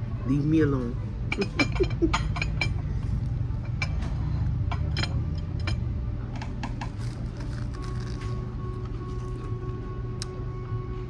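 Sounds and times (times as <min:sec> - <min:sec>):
low room hum: 0:00.0 - 0:11.0
crisp crunches of biting fried crust: 0:06.9 - 0:08.4.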